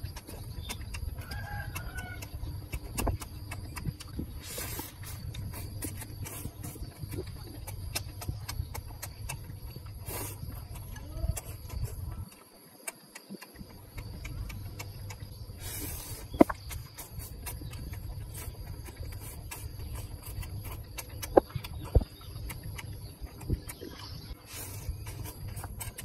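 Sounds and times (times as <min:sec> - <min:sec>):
steady low rumble: 0:00.0 - 0:12.4, 0:13.5 - 0:26.0
chewing with wet mouth clicks: 0:00.0 - 0:26.0
sharp clicks: 0:00.0 - 0:26.0.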